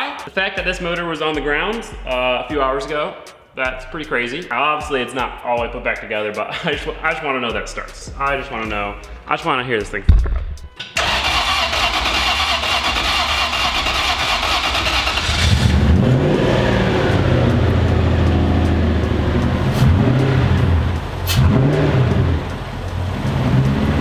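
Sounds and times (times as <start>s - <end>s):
starter cranking engine: 11.0s - 16.1s
truck engine running: 11.0s - 24.0s.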